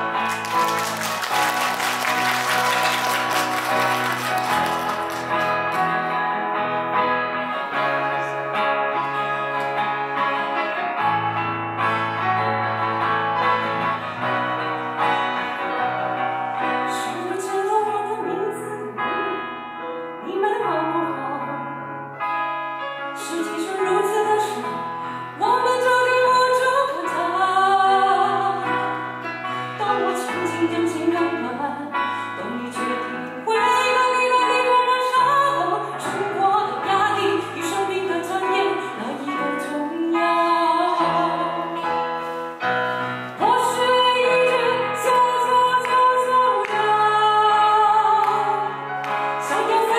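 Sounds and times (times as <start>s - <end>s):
acoustic guitar: 0.0s - 49.9s
woman singing: 16.6s - 21.9s, 23.2s - 42.0s, 43.4s - 49.9s.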